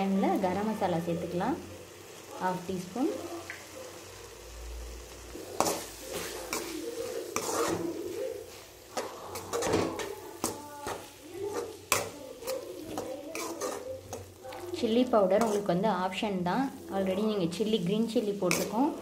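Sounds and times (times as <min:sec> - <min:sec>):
faint sizzle of frying: 0:00.0 - 0:19.0
spoon scraping and knocking pan: 0:05.3 - 0:19.0.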